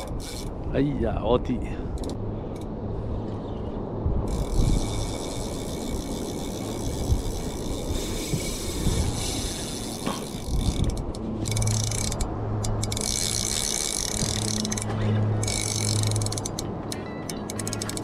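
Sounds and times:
fishing reel ticking rapidly: 0.0s - 0.5s, 4.3s - 16.7s, 17.3s - 18.0s.

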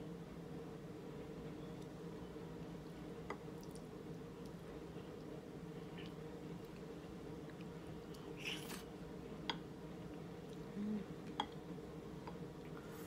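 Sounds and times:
steady low hum: 0.0s - 13.0s
person humming: 10.7s - 11.2s.

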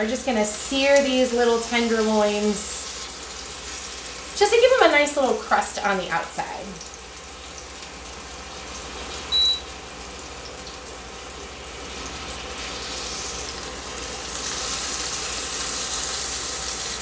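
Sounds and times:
meat sizzling in oil: 0.0s - 17.0s
short high beep: 9.3s - 9.7s.

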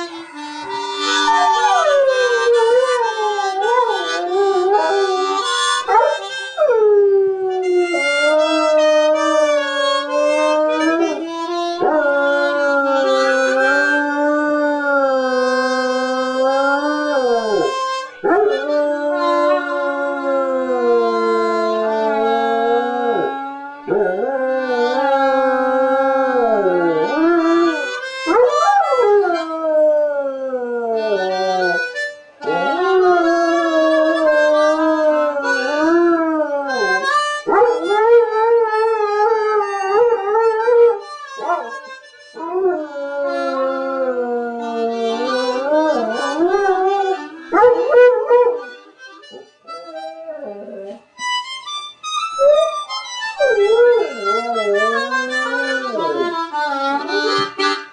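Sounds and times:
harmonica playing chords: 0.0s - 57.9s
dog howling: 1.1s - 6.8s, 7.4s - 41.8s, 42.4s - 51.0s, 52.4s - 57.6s.

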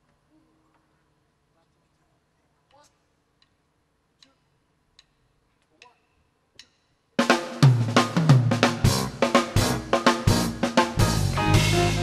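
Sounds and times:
soft count-in clicks: 2.7s - 6.8s
drum kit hits and cymbals: 6.6s - 12.0s
live band playing: 7.2s - 12.0s.

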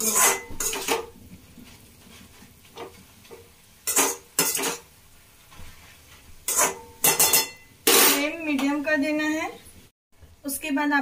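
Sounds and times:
metal spatula scraping a wok: 0.0s - 1.1s, 3.8s - 4.9s, 6.4s - 8.4s.

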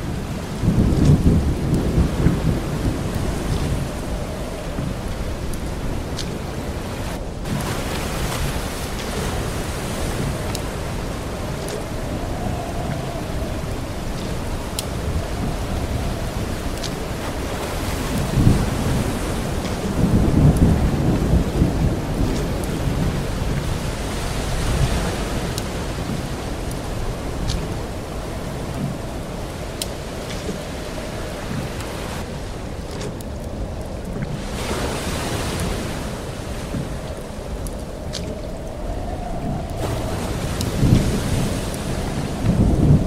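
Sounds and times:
stormy water hiss: 0.0s - 43.0s
faint ticks: 10.4s - 10.7s, 14.2s - 16.0s, 25.5s - 27.8s, 28.7s - 30.7s, 36.6s - 39.8s.

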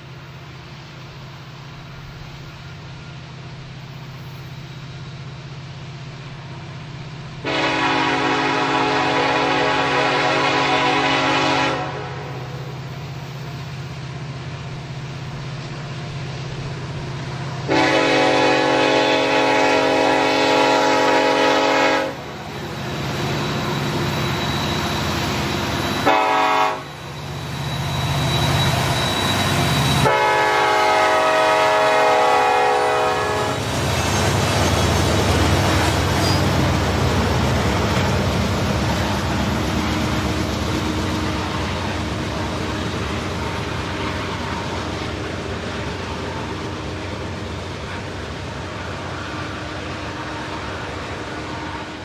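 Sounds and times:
diesel locomotives rumbling: 0.0s - 52.0s
diesel locomotive horn blasts: 7.4s - 13.4s, 17.6s - 27.3s, 28.0s - 52.0s.

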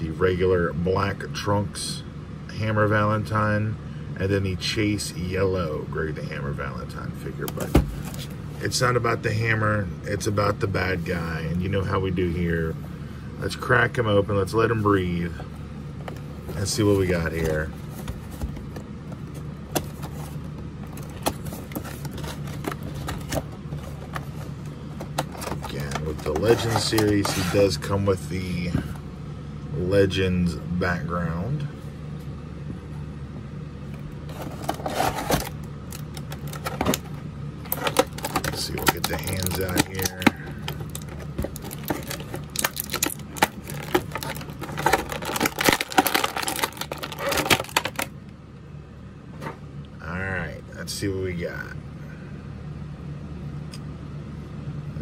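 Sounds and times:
steady low hum: 0.0s - 55.0s
cardboard and plastic crinkling: 7.4s - 8.4s, 16.0s - 27.9s, 34.2s - 48.1s.

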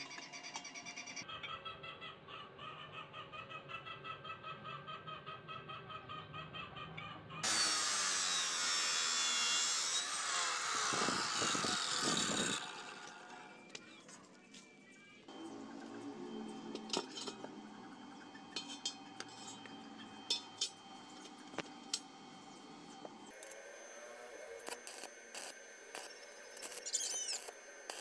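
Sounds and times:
cut-off saw grinding steel: 7.4s - 13.7s, 23.3s - 28.0s.

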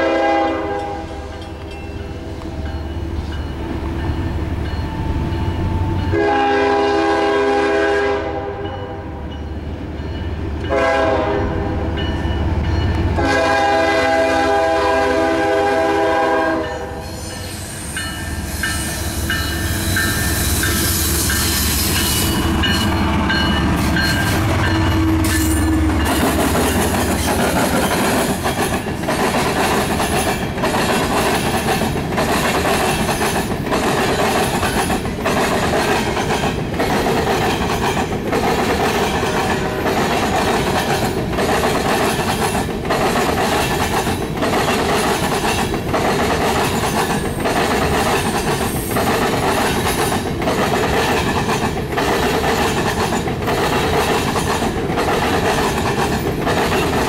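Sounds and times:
locomotive air horn blasts: 0.0s - 1.3s, 6.1s - 9.0s, 10.7s - 11.9s, 13.2s - 17.2s
train wheels clattering on rails: 9.3s - 57.0s.

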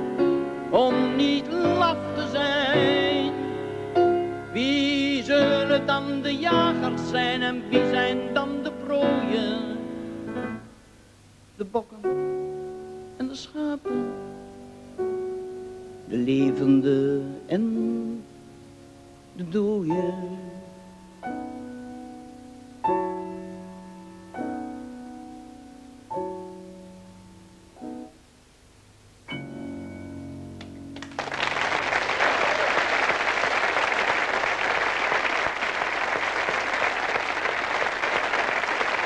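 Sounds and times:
piano chords: 0.0s - 10.8s, 12.0s - 28.3s, 29.1s - 32.1s
audience applause: 31.0s - 39.0s.

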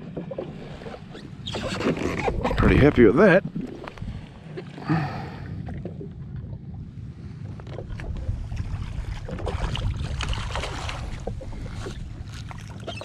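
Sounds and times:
wind rumble on microphone: 0.0s - 13.0s
water splashing: 7.8s - 13.0s.

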